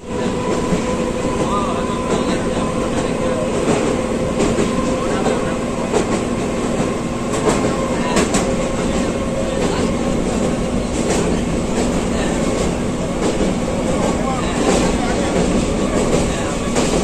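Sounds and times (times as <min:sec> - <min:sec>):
train wheels rumbling on rails: 0:00.0 - 0:17.0
rail joint clacks: 0:00.1 - 0:17.0.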